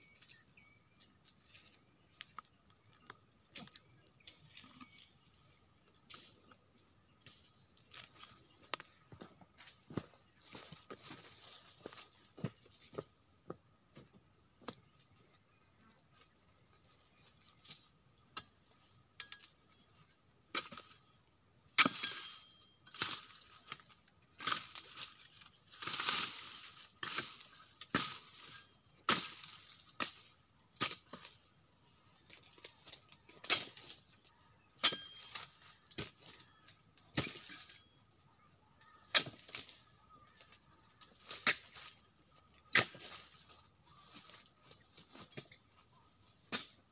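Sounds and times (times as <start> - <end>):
high insect drone: 0.0 - 46.9
chisel chopping into palm fronds: 21.8 - 23.3, 29.1 - 30.2, 42.7 - 43.3.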